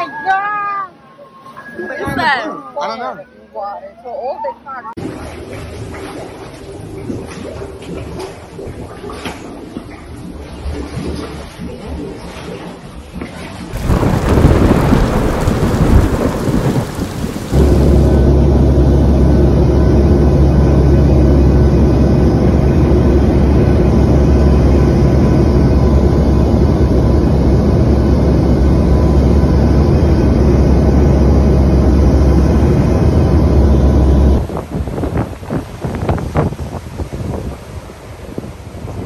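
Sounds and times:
surf: 13.7s - 24.6s
wind on microphone: 13.7s - 39.0s
airplane cabin drone: 14.0s - 34.8s.

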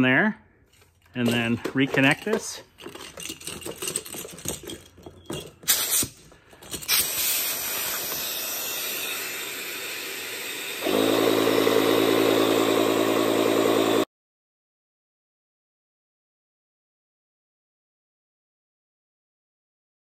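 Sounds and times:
hose clicks and knocks: 1.2s - 3.0s
air hissing: 5.7s - 6.3s, 6.9s - 11.0s
electric pump motor running: 6.9s - 14.1s.

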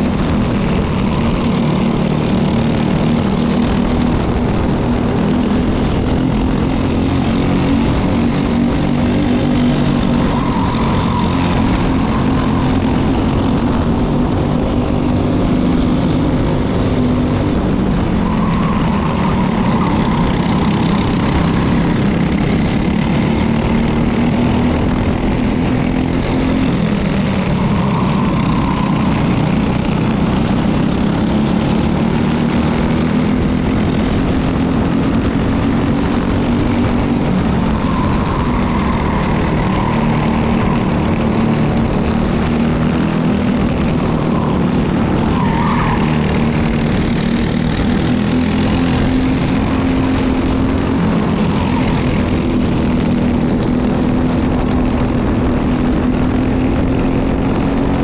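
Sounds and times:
kart engines racing at high revs: 0.0s - 58.0s.

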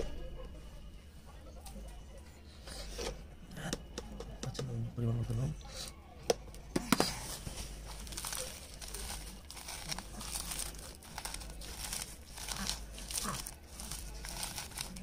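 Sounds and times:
dried chillies crushed by hand: 7.3s - 15.0s.

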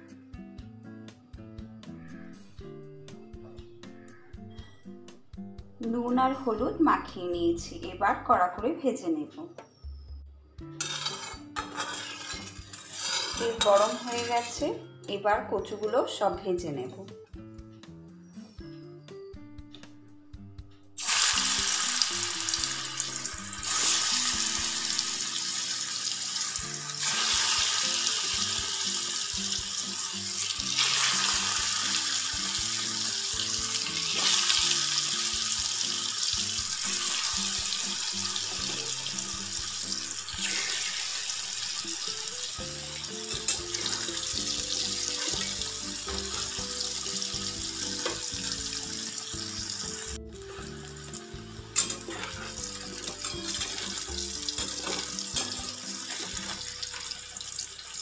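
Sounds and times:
taro slices sizzling in hot oil: 10.8s - 14.8s, 21.0s - 58.0s.

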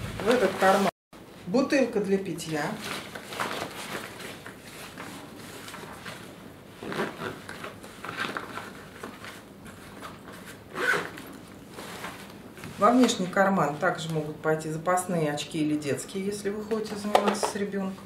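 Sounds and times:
backpack fabric rustling: 2.9s - 12.3s.

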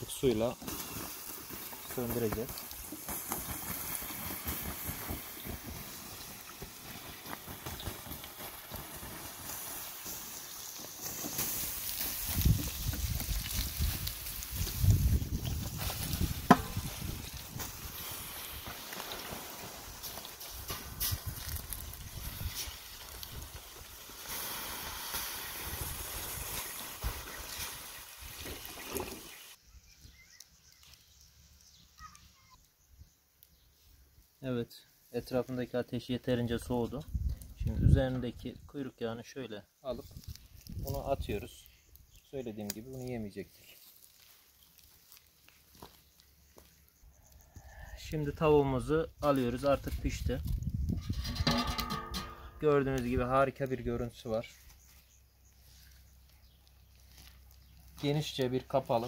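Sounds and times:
water hissing on hot embers: 0.0s - 29.6s, 39.8s - 59.0s
wind rumbling on microphone: 12.2s - 18.6s, 20.8s - 24.0s, 37.0s - 38.7s, 49.8s - 51.8s.

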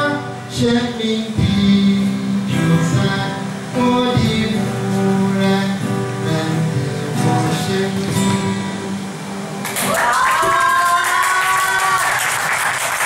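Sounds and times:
man singing into a microphone: 0.0s - 9.0s
acoustic guitar: 0.0s - 13.0s.

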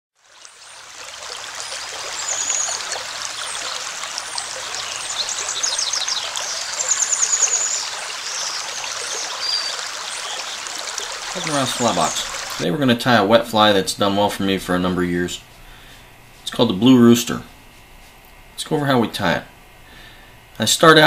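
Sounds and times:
stream rushing and trickling: 0.2s - 12.7s
bird chirps and trills: 0.4s - 12.6s.

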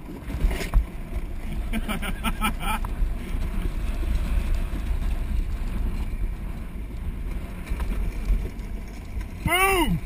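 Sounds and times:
wheels rumbling on concrete: 0.0s - 10.0s.

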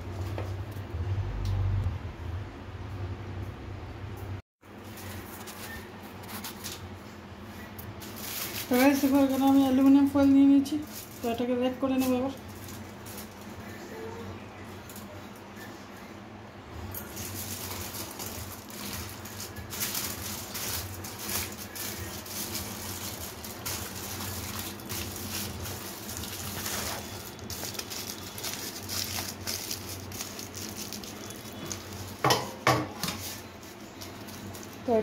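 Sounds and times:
aluminium foil crinkling: 4.8s - 14.2s, 16.8s - 35.0s.

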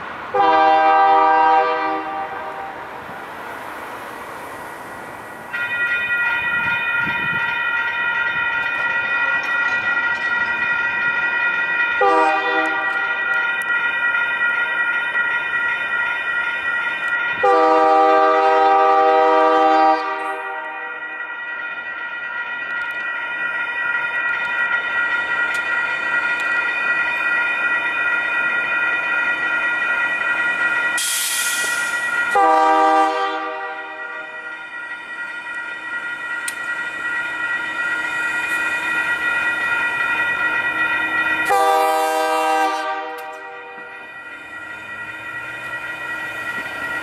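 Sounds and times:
crossing warning bell ringing: 0.0s - 47.0s
locomotive horn blasts: 0.3s - 2.8s, 12.0s - 13.2s, 17.4s - 21.0s, 32.3s - 34.3s, 41.4s - 43.9s
brief hiss: 31.0s - 32.0s.

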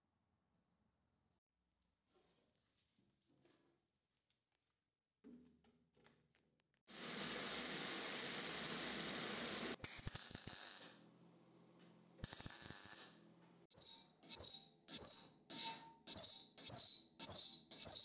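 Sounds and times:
arc welding crackling: 12.2s - 13.1s.

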